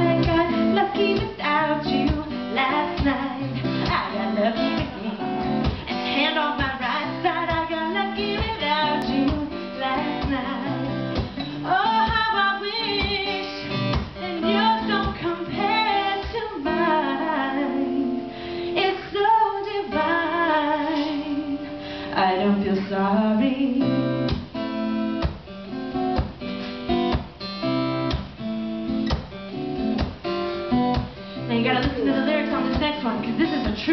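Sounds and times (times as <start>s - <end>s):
woman singing: 0.0s - 24.4s, 31.4s - 33.9s
guitar accompaniment: 0.0s - 33.9s.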